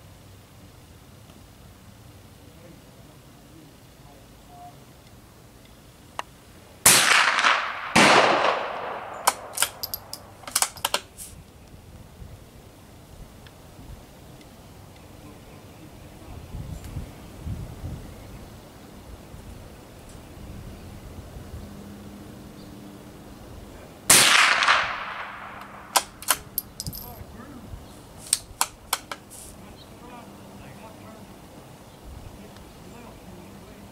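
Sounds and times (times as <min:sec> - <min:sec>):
rifle shot with echo: 0:06.8 - 0:10.7, 0:24.1 - 0:27.0
gunshots with ringing tail: 0:06.9 - 0:10.1
rifle bolt clicking: 0:09.2 - 0:11.0, 0:25.6 - 0:27.1.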